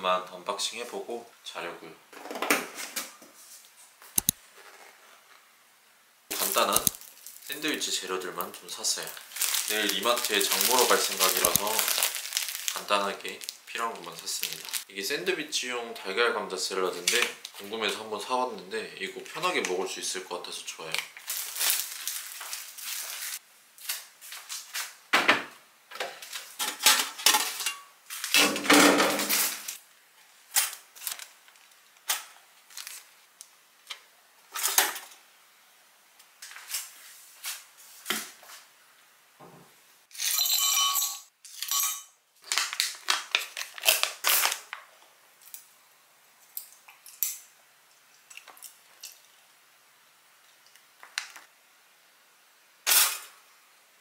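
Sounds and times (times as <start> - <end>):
packaging rustling: 6.3 - 14.9, 20.9 - 24.8, 29.1 - 29.8, 30.5 - 33.3, 42.4 - 44.8
dishes and utensils clinking: 26.6 - 28.0.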